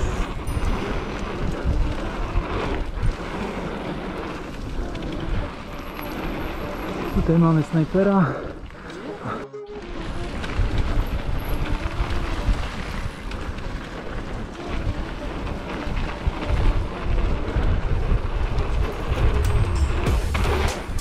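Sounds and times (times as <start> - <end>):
mountain bike rattling on dirt trail: 0.0 - 21.0
wind buffeting microphone: 0.0 - 21.0.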